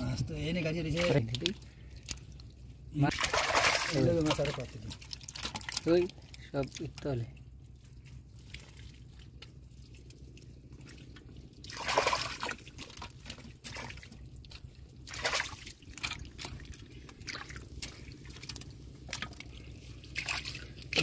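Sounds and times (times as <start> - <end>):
pond water splashing and sloshing: 0.0 - 21.0.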